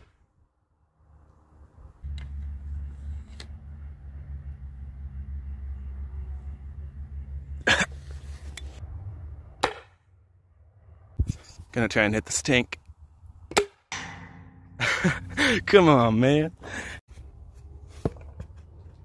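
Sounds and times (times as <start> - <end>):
steady low rumble: 12.8 - 17.1.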